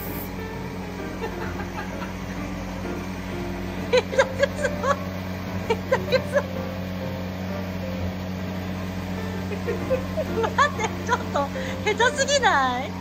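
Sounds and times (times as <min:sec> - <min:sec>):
cotton candy machine motor hum: 0:00.0 - 0:13.0
people laughing: 0:01.2 - 0:02.3, 0:03.9 - 0:05.0, 0:05.6 - 0:06.5, 0:09.5 - 0:11.6.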